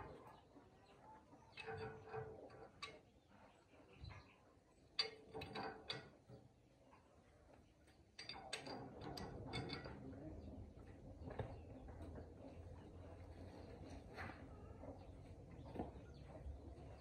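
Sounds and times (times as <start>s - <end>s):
metal parts clinking and rattling: 8.2s - 10.0s.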